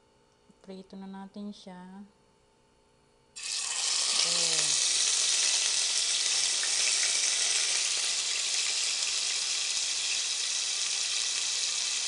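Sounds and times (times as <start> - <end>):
beef sizzling in hot oil: 3.4 - 12.0.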